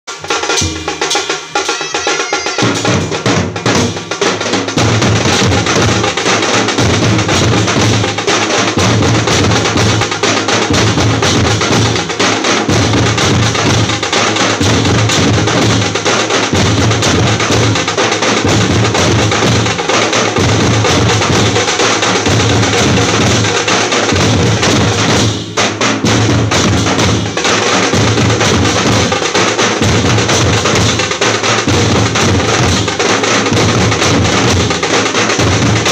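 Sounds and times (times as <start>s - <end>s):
loud pulsing drumming: 0.1s - 35.9s.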